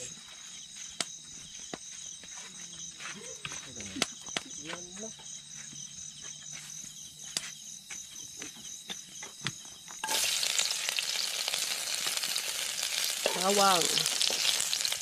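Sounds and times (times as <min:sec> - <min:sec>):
high insect trill: 0:00.0 - 0:15.0
garlic sizzling in hot oil: 0:10.0 - 0:15.0.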